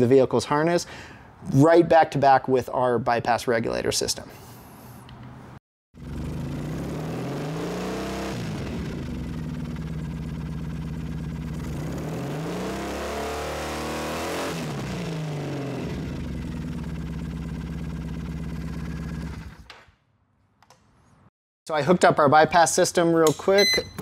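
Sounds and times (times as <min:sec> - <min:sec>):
motorcycle engine idling and revving: 0:06.0 - 0:19.7.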